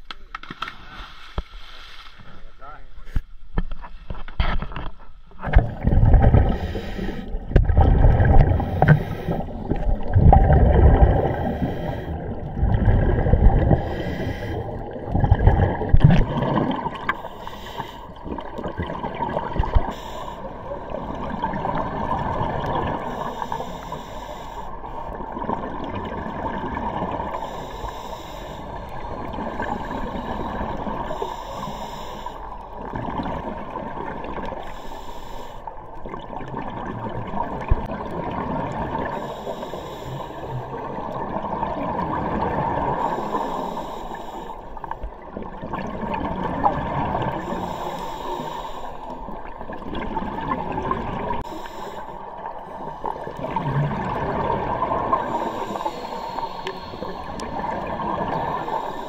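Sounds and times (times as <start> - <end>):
regulator hissing inhale: 0.8 - 2.2, 6.4 - 7.4, 8.5 - 9.6, 11.2 - 12.4, 13.7 - 14.9, 17.0 - 18.2, 19.6 - 20.6, 23.0 - 25.0, 27.2 - 32.7, 34.5 - 35.8, 39.0 - 40.8, 42.9 - 45.0, 47.3 - 49.5, 51.3 - 53.4, 55.1 - 59.0
gurgling exhaust bubbles: 5.4 - 6.7, 7.3 - 17.2, 53.3 - 55.5.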